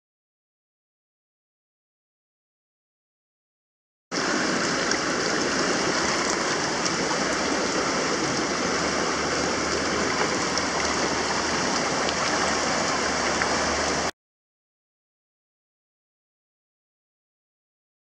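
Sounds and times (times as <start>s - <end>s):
river water rushing: 4.1s - 14.1s.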